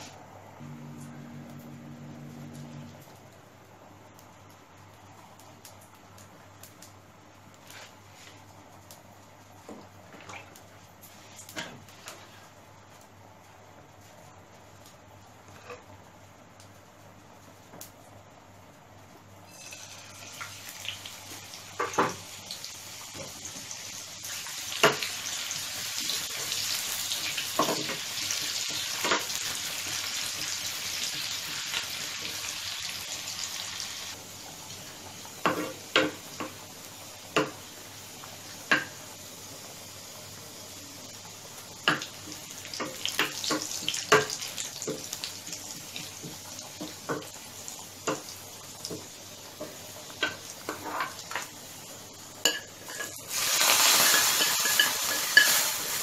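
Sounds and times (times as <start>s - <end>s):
onion sizzling in oil: 19.2s - 56.0s.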